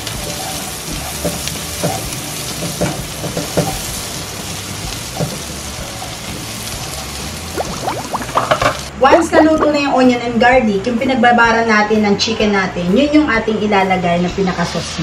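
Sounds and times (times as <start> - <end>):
onion sizzling in butter: 0.0 - 8.9.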